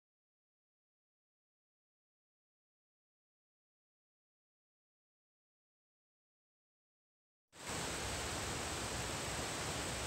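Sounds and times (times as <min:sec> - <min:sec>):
mountain creek rushing: 0:07.6 - 0:10.0.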